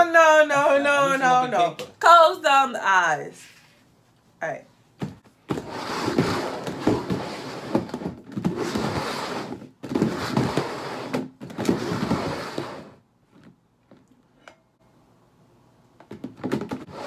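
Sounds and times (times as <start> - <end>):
plastic bowls scraping on table: 5.5 - 13.0.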